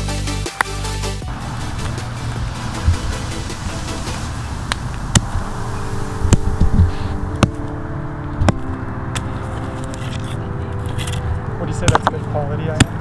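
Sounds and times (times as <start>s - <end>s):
steady hum: 1.2s - 11.6s
hammer stone striking iron: 11.8s - 13.0s.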